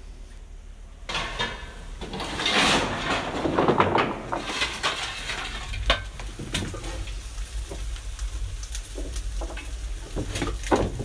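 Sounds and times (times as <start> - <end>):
shovel clanking on metal floor: 1.1 - 7.0
shovel scraping through coal: 2.0 - 3.5, 4.3 - 5.9.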